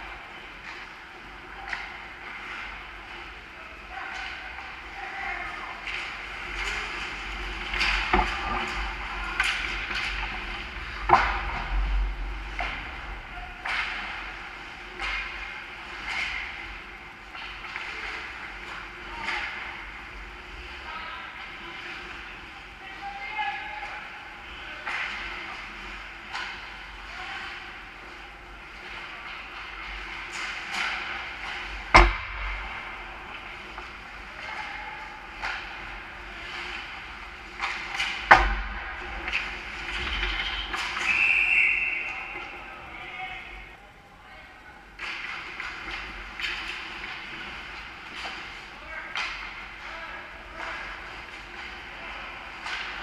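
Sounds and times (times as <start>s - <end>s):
hockey sticks and puck cracking: 5.8s - 11.8s, 28.9s - 32.8s, 36.6s - 42.6s, 45.0s - 53.0s.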